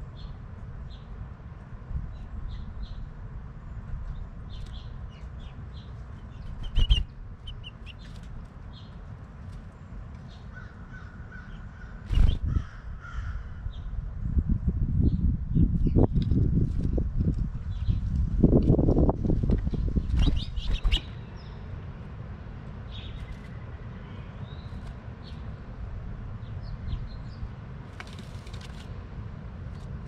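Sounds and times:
finches chirping: 4.5s - 9.0s, 20.0s - 21.6s.

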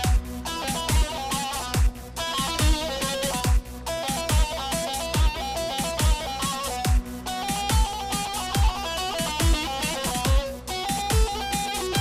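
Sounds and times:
booming kick drum: 0.0s - 1.2s, 1.8s - 2.0s, 2.6s - 3.7s, 4.3s - 4.6s, 5.2s - 5.4s, 6.0s - 6.3s, 6.9s - 7.1s, 7.7s - 10.5s, 11.1s - 11.4s
synthesizer melody: 0.0s - 12.0s.

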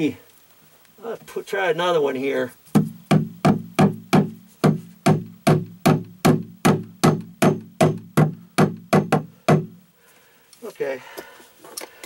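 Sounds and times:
hammer blows on wood: 2.7s - 9.8s.

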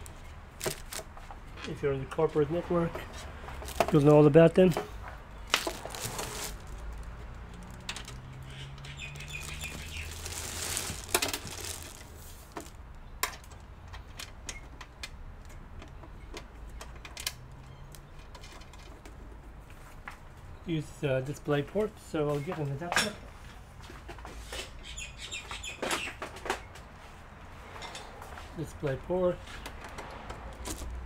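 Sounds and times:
plastic bag rustling: 0.0s - 1.1s, 3.6s - 4.8s, 5.4s - 12.8s.

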